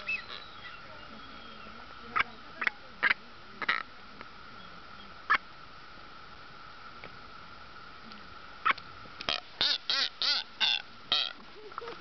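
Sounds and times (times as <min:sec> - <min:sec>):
bird calls: 0:00.0 - 0:03.9, 0:08.6 - 0:12.0.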